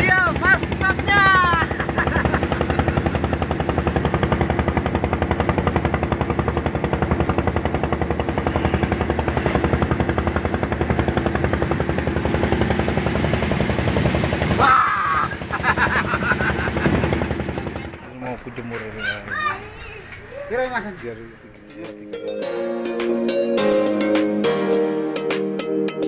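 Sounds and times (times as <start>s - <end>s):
boat engine running: 0.0s - 22.2s.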